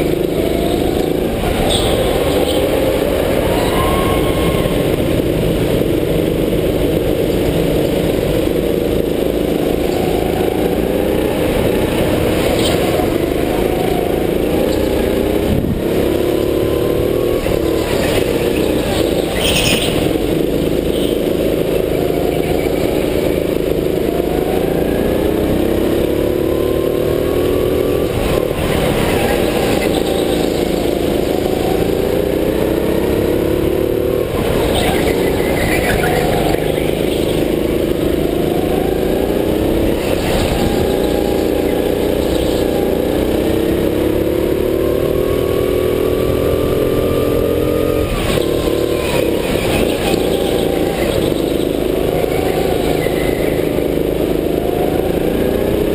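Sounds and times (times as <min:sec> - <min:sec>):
go-kart engine revving: 0:00.0 - 0:55.9.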